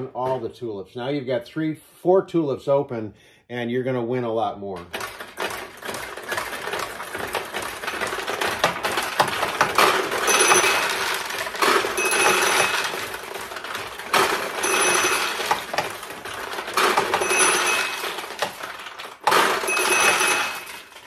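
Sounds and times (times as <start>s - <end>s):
steel balls clattering through pins: 4.8s - 21.0s
rattling rush of balls: 4.9s - 21.0s
ringing tone: 10.3s - 11.0s, 12.0s - 12.8s, 14.6s - 15.4s, 17.2s - 18.0s, 19.7s - 20.7s.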